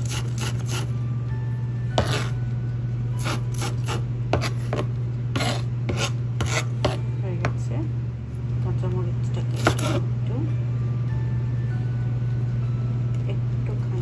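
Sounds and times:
low hum: 0:00.9 - 0:14.0
knife chopping on plastic board: 0:02.0 - 0:02.3, 0:03.2 - 0:07.6, 0:09.6 - 0:10.0.

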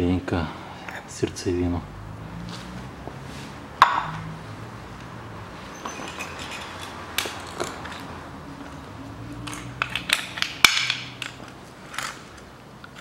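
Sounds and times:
metal clinks and knocks: 0:05.7 - 0:08.8, 0:09.4 - 0:13.0.

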